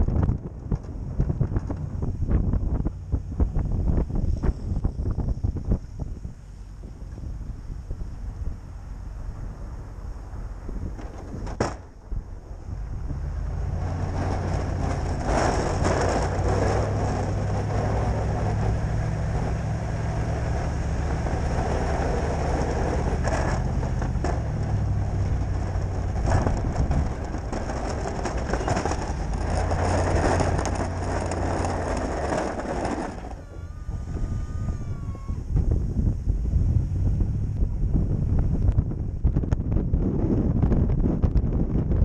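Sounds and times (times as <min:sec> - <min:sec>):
truck engine running: 0:00.0 - 0:40.9
tyres rushing through snow: 0:12.2 - 0:34.7.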